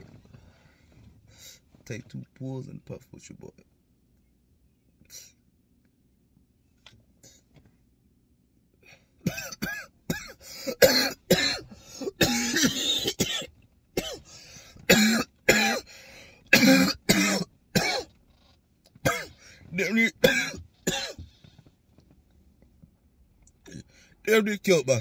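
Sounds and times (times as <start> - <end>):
man coughing hard: 9.2 - 15.9, 16.5 - 18.1, 19.0 - 21.3.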